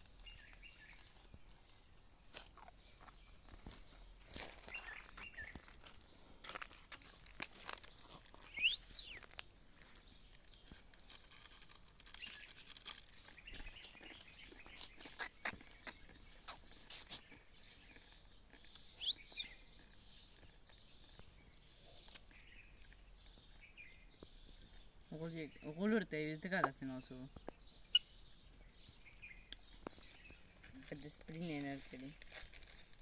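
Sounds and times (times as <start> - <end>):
sharp chirps and clicks: 4.4 - 9.5, 10.4 - 24.8, 26.5 - 28.3
parakeet squawking: 15.1 - 17.2.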